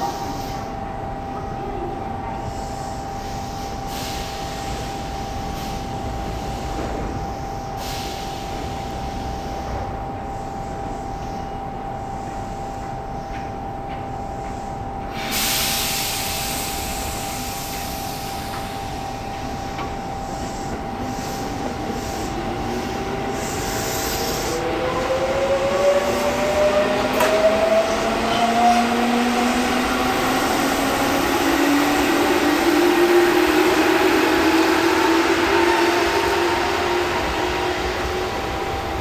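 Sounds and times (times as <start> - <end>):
air hiss: 2.6 - 11.2, 15.1 - 24.7.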